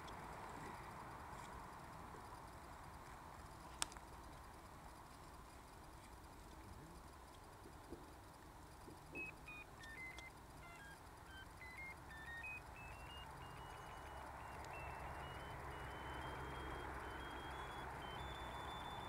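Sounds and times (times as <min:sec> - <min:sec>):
short electronic tones: 0:09.1 - 0:19.0.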